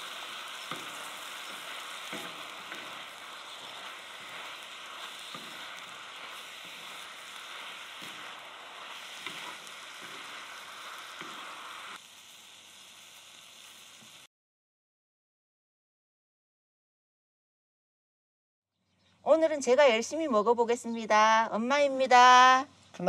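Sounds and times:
meat and vegetables sizzling: 0:00.0 - 0:14.3
wooden spatula knocking and scraping: 0:00.6 - 0:04.4, 0:09.2 - 0:10.3.

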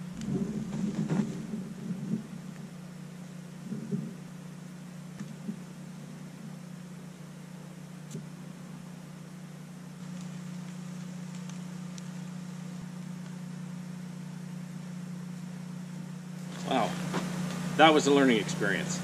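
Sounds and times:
low mechanical hum: 0:00.0 - 0:19.0
faint ticks: 0:10.0 - 0:13.4.

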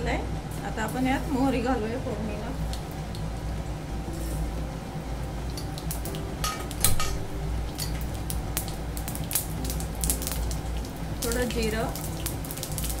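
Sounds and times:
seeds popping in hot oil: 0:02.2 - 0:04.6, 0:05.2 - 0:13.0.

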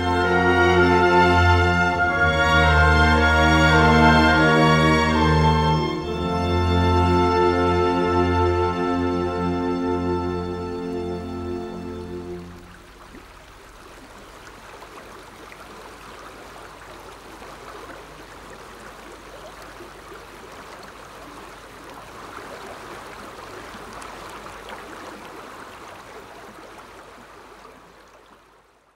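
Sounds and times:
film score music: 0:00.0 - 0:12.9
babbling water: 0:10.4 - 0:28.8.

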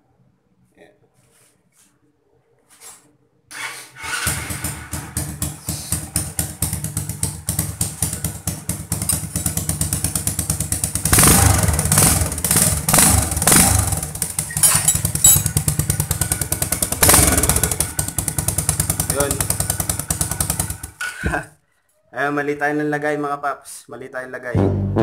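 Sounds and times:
motorcycle engine idling: 0:04.8 - 0:21.0.

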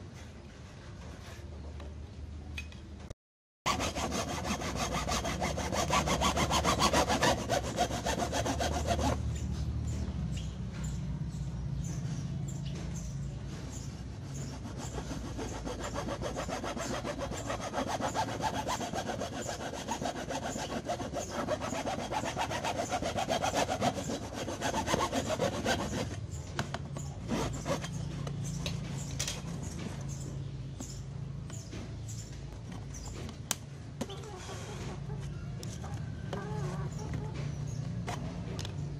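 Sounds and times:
hacksaw cutting plastic pipe: 0:03.7 - 0:09.2, 0:14.4 - 0:26.2.

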